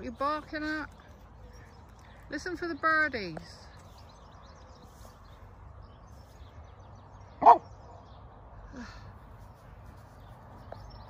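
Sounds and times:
dog barking: 7.4 - 7.7.

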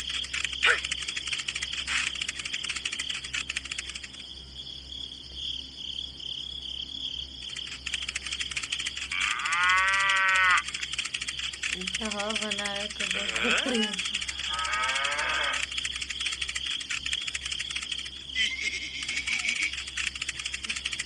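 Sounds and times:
fast dense ticking: 0.0 - 4.3, 7.4 - 21.0
cow mooing: 9.2 - 10.6, 13.2 - 15.6.

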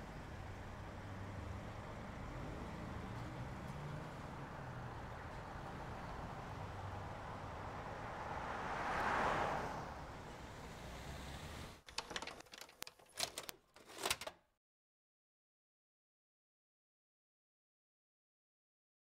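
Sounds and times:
vehicle passing: 0.4 - 11.8
video recorder ejecting tape: 11.9 - 14.4.

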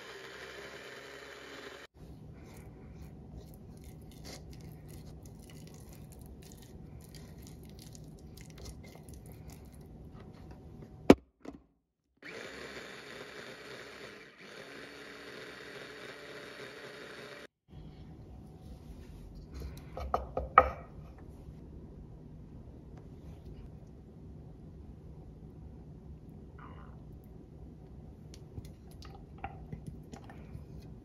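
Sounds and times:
low steady hum: 2.0 - 11.2, 17.7 - 31.0.

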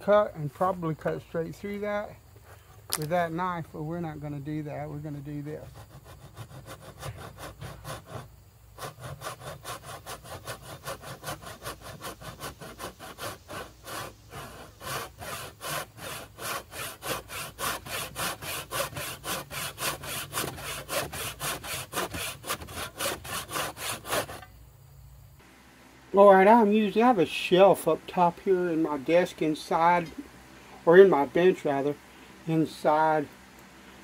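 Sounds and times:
hand saw cutting wood: 5.2 - 24.5.

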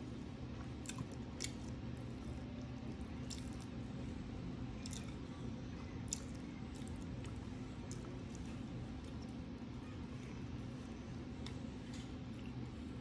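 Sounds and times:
low background hum: 0.0 - 13.0
wet chewing sounds: 0.5 - 3.8, 4.8 - 5.2, 6.0 - 9.5.

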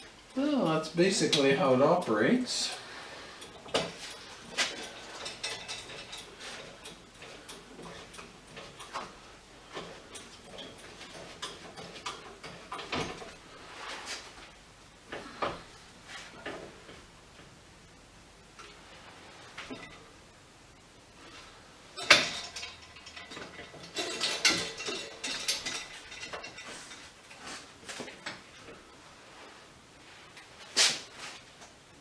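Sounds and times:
light metal clicks and clacks: 3.4 - 13.4, 22.0 - 28.8.

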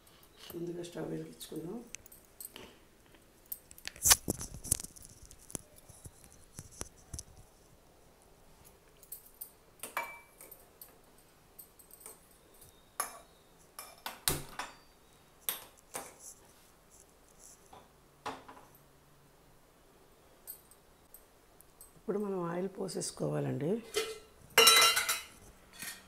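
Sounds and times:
metal pan clinking and knocking: 23.9 - 26.0.

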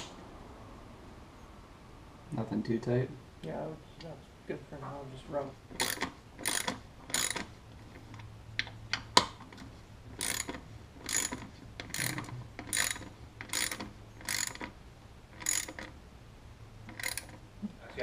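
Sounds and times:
ratchet wrench clicking: 5.8 - 7.5, 10.2 - 14.8, 15.4 - 16.0, 16.9 - 17.4.

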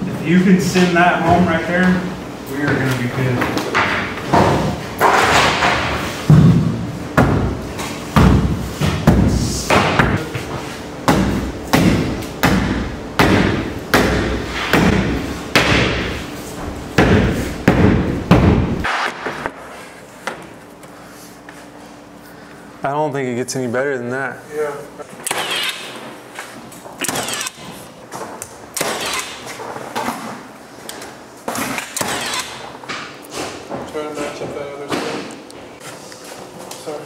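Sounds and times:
mallet thumping wood: 11.0 - 16.1, 17.0 - 19.5.

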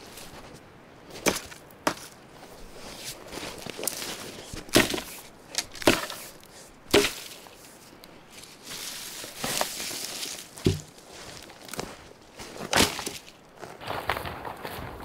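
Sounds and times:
twigs rustling: 0.0 - 14.5
hatchet chopping branches: 1.2 - 2.2, 4.5 - 7.6, 9.3 - 11.0, 12.7 - 13.3.

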